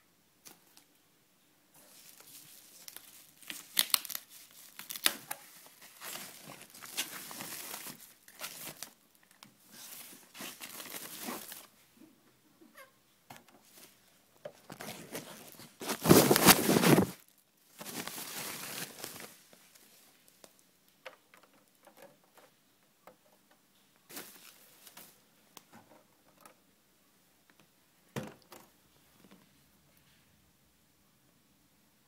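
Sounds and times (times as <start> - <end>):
handling rustling and rubbing: 1.7 - 11.9, 13.5 - 20.6, 21.4 - 26.6.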